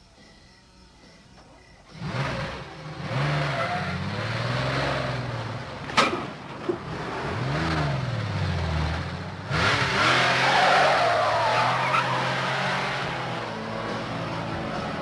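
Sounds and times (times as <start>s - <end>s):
car engine revving: 1.9s - 15.0s
tyre squeal: 3.4s - 4.2s, 10.2s - 12.5s.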